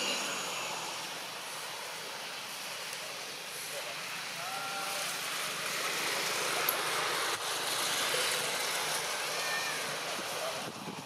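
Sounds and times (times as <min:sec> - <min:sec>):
outdoor background hiss: 0:00.0 - 0:11.0.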